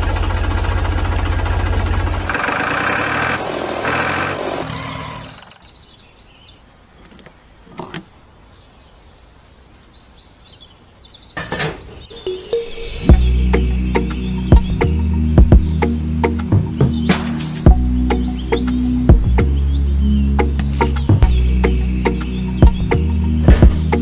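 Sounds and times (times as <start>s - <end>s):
tractor engine chugging: 0.0s - 5.6s.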